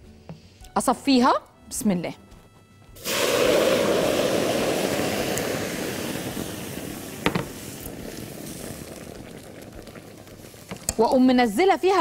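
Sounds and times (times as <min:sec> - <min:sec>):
liquid pouring through strainer: 0:03.0 - 0:10.8.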